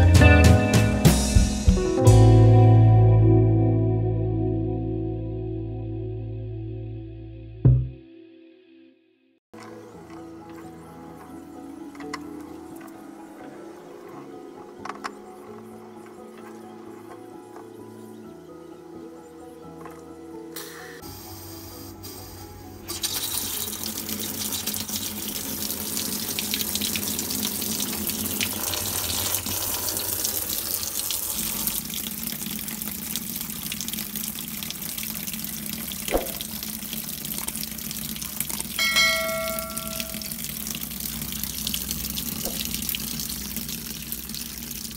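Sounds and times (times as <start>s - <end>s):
water pouring into washing machine: 22.9s - 44.9s.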